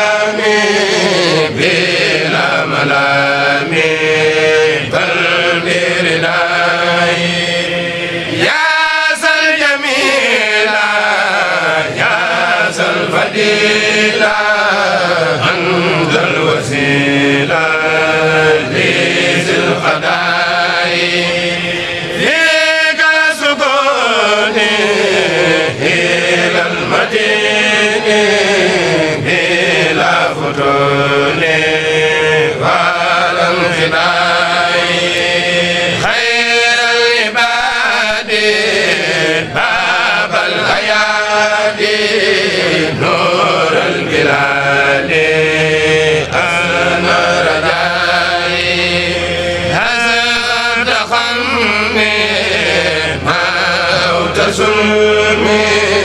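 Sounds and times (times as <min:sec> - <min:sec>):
group chanting devotional poem: 0:00.0 - 0:56.0.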